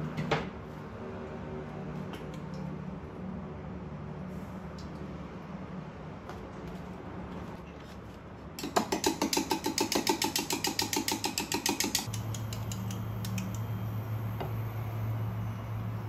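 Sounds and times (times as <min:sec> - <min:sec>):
rapid mechanical clicking: 0:08.6 - 0:13.6
steady low hum: 0:12.0 - 0:16.0.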